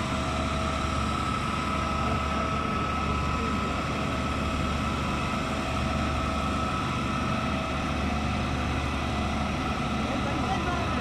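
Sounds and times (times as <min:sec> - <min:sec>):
diesel engine drone: 0:00.0 - 0:11.0.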